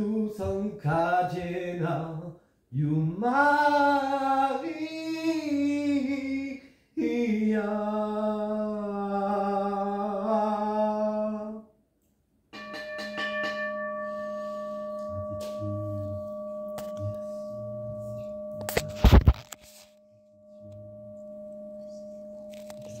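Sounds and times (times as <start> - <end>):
man chanting: 0.0 - 11.7, 15.1 - 18.4
singing bowl ringing: 12.6 - 23.0.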